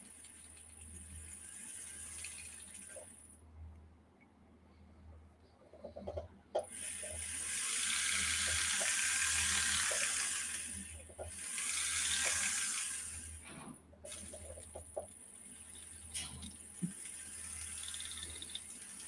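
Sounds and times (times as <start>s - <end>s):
rotary tool grinding metal: 6.8s - 13.2s.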